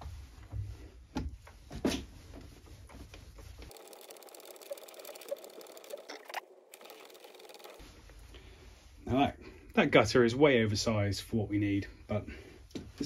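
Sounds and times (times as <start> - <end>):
lathe motor hum: 3.7 - 7.8.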